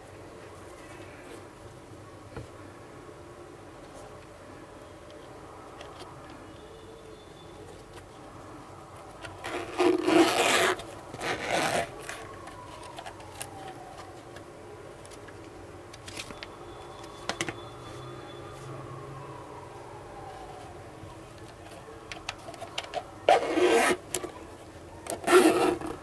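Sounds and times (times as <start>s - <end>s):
zipper pulled open: 9.4s - 12.1s, 23.3s - 24.0s, 25.1s - 26.0s.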